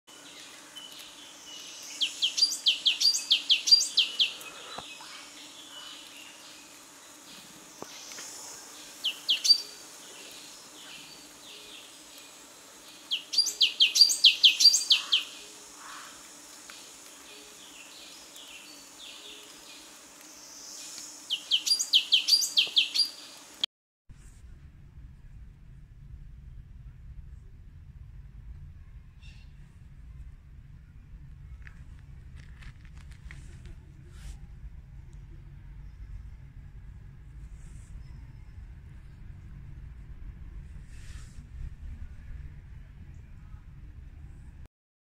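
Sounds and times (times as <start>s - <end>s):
songbird singing: 0.1s - 23.6s.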